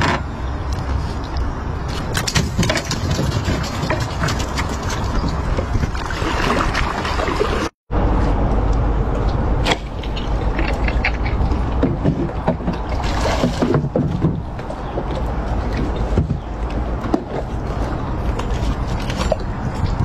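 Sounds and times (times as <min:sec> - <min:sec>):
water splashing: 0:01.9 - 0:07.8, 0:09.7 - 0:20.0
steady low rumble: 0:07.6 - 0:20.0.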